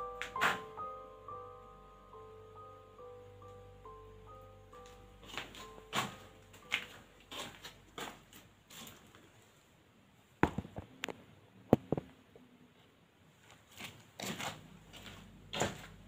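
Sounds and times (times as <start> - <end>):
footsteps indoors: 4.8 - 9.4, 13.4 - 16.0.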